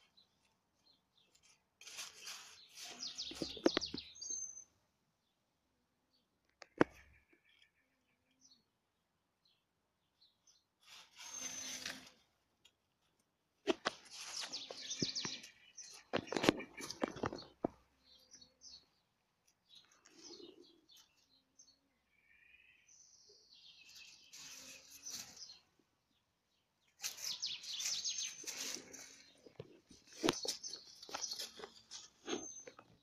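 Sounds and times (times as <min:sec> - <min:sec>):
rustling dry leaves: 0:01.3 - 0:03.8, 0:10.8 - 0:12.2, 0:13.7 - 0:17.5, 0:23.9 - 0:25.6, 0:27.0 - 0:32.5.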